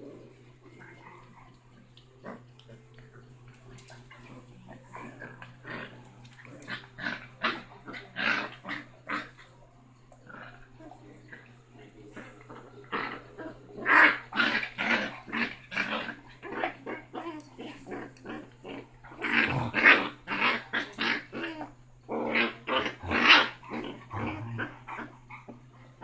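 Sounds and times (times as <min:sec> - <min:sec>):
puppy growling and yapping: 0:12.2 - 0:25.6.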